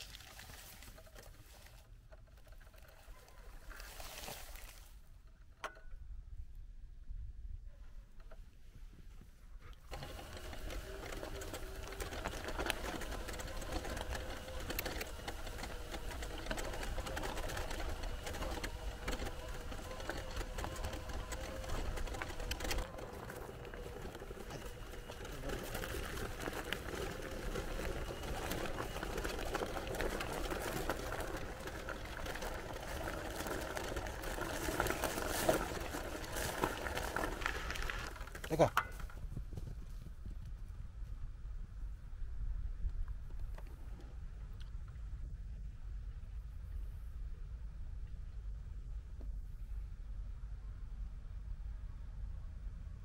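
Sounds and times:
wheelchair motors whining: 0:00.0 - 0:04.8, 0:09.8 - 0:38.9
wheels rolling over gravel: 0:00.0 - 0:05.8, 0:09.7 - 0:40.1.

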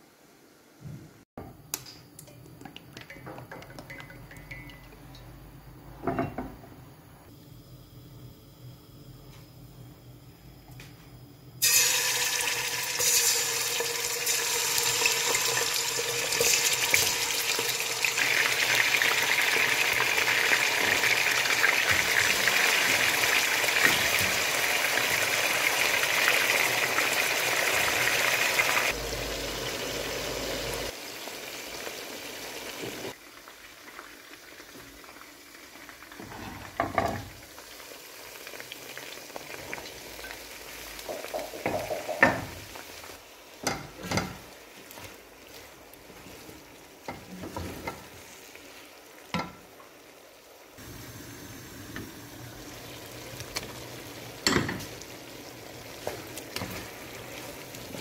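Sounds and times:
chicken frying in hot oil: 0:11.6 - 0:58.0
stirring knocks in pan: 0:41.0 - 0:42.6.

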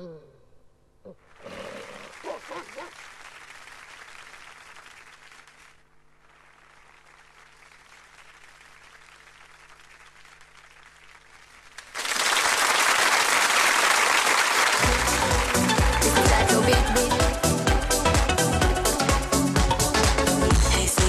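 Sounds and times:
audience applause: 0:01.2 - 0:16.6.

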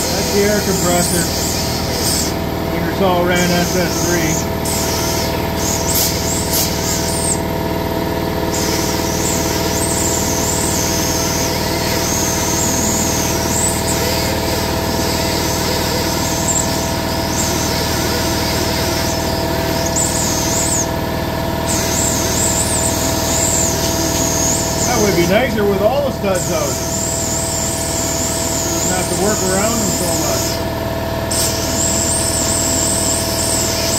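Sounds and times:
air compressor humming: 0:00.0 - 0:33.9
air die grinder whining on metal: 0:00.0 - 0:33.9.

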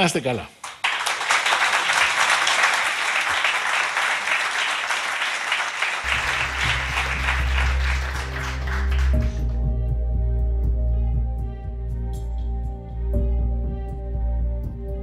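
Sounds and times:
audience applauding: 0:00.6 - 0:09.7
background music: 0:06.0 - 0:15.0.

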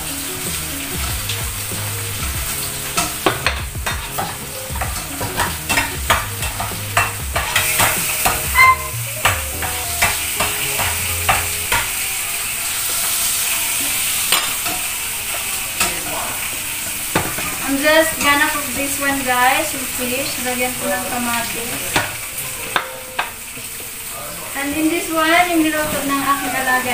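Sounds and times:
food sizzling in a frying pan: 0:00.0 - 0:26.9
utensil scraping a pan: 0:01.8 - 0:18.4.

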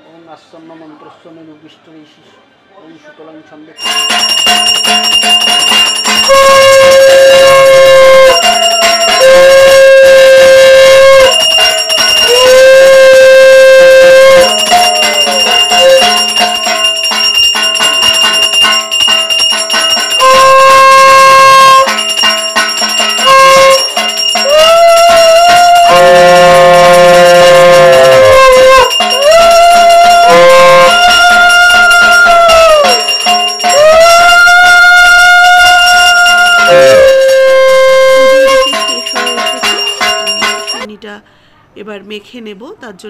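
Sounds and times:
hand bell ringing: 0:03.8 - 0:12.8, 0:14.0 - 0:40.9
conch shell blown: 0:03.8 - 0:40.9.

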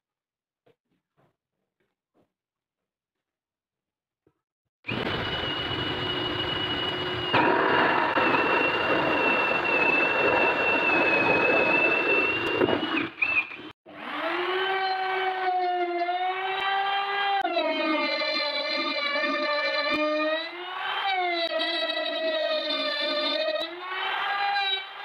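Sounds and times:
drill boring through panel: 0:04.9 - 0:23.6
router whining: 0:04.9 - 0:24.6.

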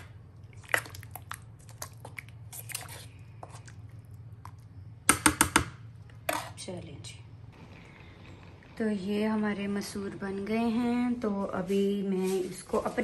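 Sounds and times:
spoon stirring thick lentils: 0:00.0 - 0:04.7, 0:06.1 - 0:06.7
steady low hum: 0:00.0 - 0:13.0.

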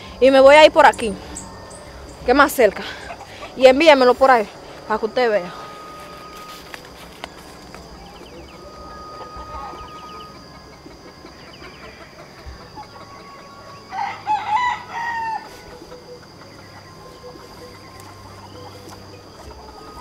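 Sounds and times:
steady high-pitched drone: 0:00.0 - 0:20.0
rooster crowing: 0:04.4 - 0:20.0.

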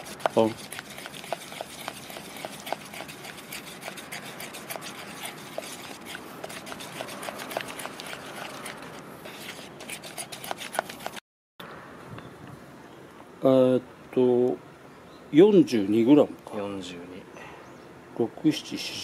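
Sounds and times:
stick clicking on bucket sides: 0:00.0 - 0:11.2
stick stirring liquid in bucket: 0:00.0 - 0:11.2.

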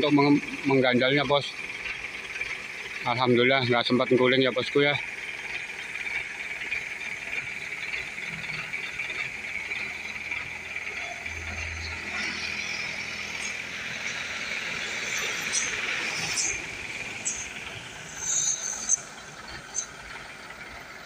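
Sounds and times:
diesel engine idling: 0:00.0 - 0:21.0
high-pitched drone: 0:06.6 - 0:20.9.

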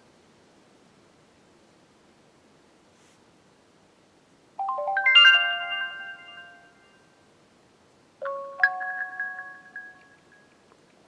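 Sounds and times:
phone ringtone notes: 0:04.6 - 0:06.9, 0:08.2 - 0:10.6.

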